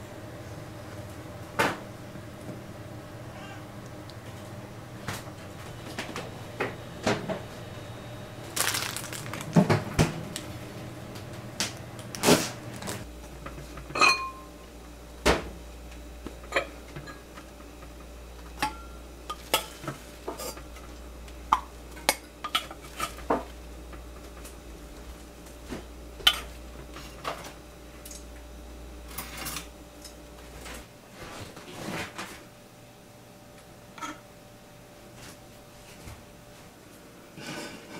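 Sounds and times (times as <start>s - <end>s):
pots and tableware clinking: 13.9s - 14.5s, 18.6s - 20.6s, 34.0s - 34.2s.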